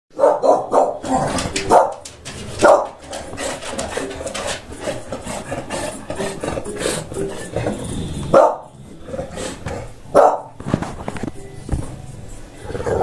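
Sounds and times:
dog barking: 0.1s - 1.1s, 1.7s - 2.0s, 2.6s - 3.0s, 8.3s - 8.7s, 10.1s - 10.6s.

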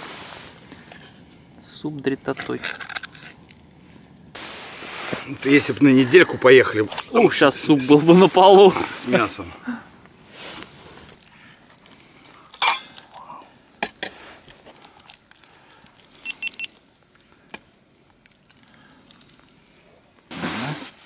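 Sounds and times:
camp cookware clinking: 12.4s - 13.2s.

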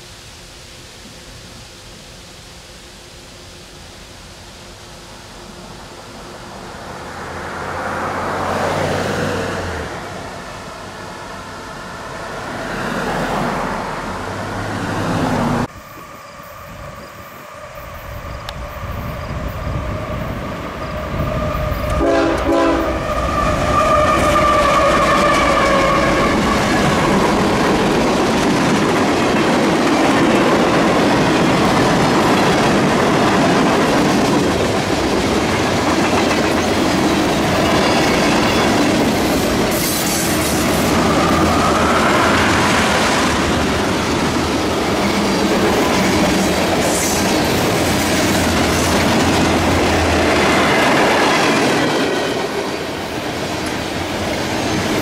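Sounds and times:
freight train rumbling past: 3.5s - 55.0s
road traffic: 5.4s - 55.0s
train horn: 21.0s - 27.3s
wheels clacking over rail joints: 23.1s - 55.0s.

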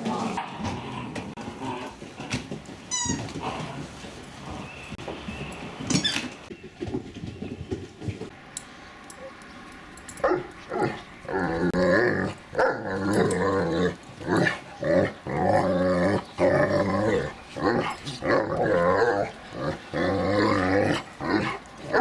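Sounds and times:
dogs growling: 0.0s - 2.5s, 10.2s - 22.0s.

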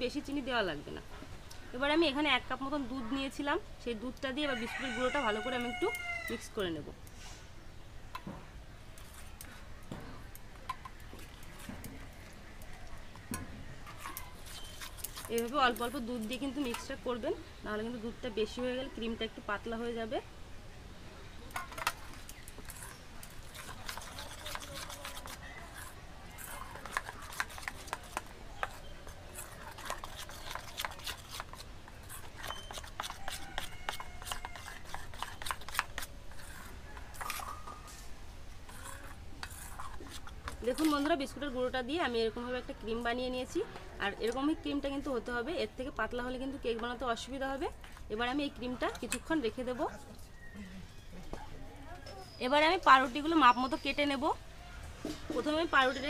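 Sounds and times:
spoon scraping metal bowl: 13.8s - 17.0s, 21.6s - 41.4s.

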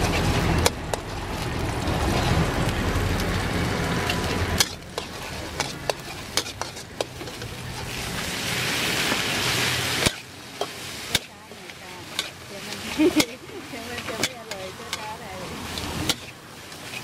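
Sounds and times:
low rumble: 0.0s - 5.0s
egg sizzling in hot oil: 0.0s - 17.0s
metal ladle scraping a wok: 3.9s - 17.0s.

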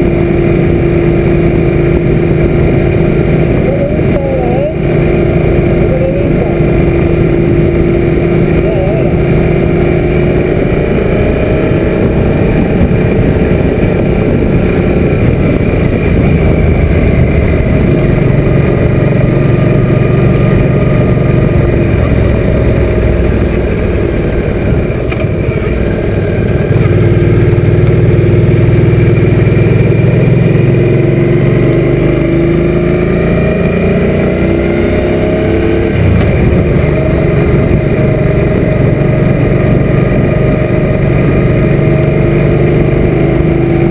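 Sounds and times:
motorcycle engine running: 0.0s - 43.9s
wind noise on microphone: 6.9s - 28.6s, 35.2s - 43.9s.

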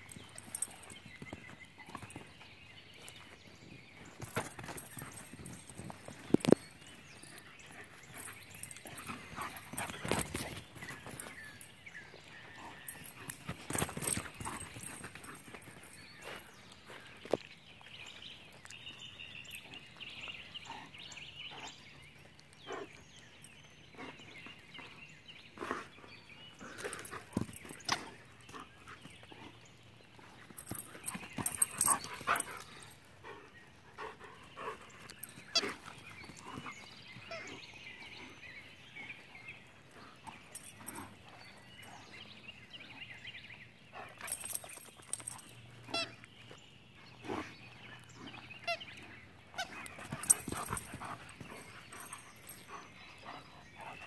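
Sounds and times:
birds singing: 0.0s - 54.0s
dog shaking a toy on grass: 49.6s - 52.8s.

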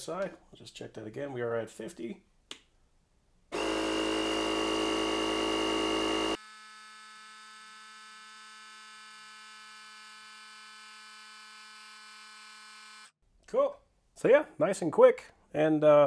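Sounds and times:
air compressor motor hum: 3.5s - 13.0s.

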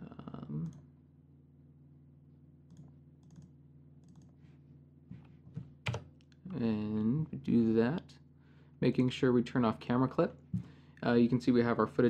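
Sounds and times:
low electrical hum: 0.0s - 12.0s
computer mouse clicks: 2.7s - 4.3s.

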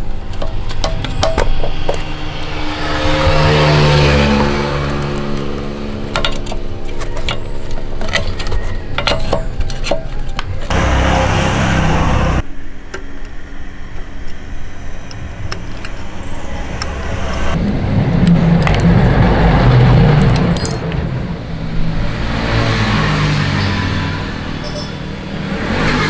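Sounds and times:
rough noise: 0.0s - 8.6s, 9.2s - 26.0s
engine humming: 0.0s - 26.0s
hand tools clicking on metal: 6.1s - 10.7s.

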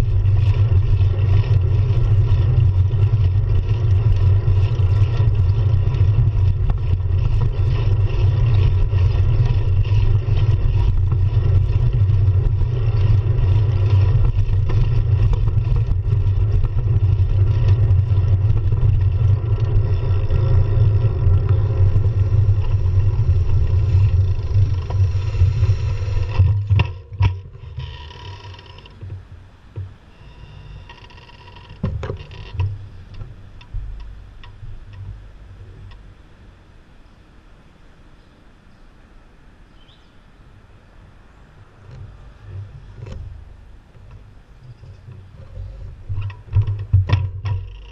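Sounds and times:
bike clicks: 0.0s - 29.2s, 30.8s - 36.1s, 41.8s - 47.9s
tyre and road noise: 0.0s - 47.9s
wind rumbling on microphone: 0.0s - 47.9s.

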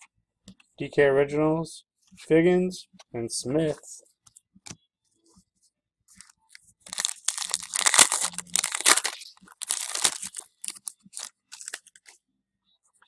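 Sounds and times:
wrapper tearing and crumpling: 6.2s - 12.1s
cards rustling and ticking: 6.2s - 12.2s.

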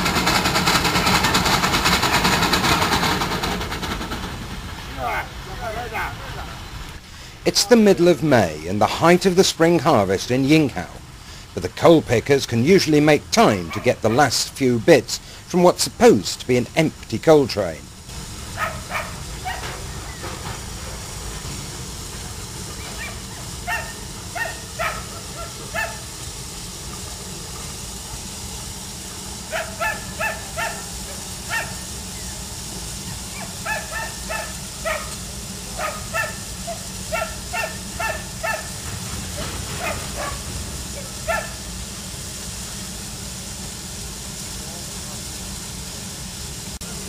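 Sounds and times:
dog barking: 13.7s - 14.3s, 18.6s - 19.7s, 23.0s - 26.0s, 29.5s - 30.8s, 31.5s - 31.8s, 33.3s - 35.1s, 35.8s - 38.7s, 39.8s - 40.4s, 41.2s - 41.6s.

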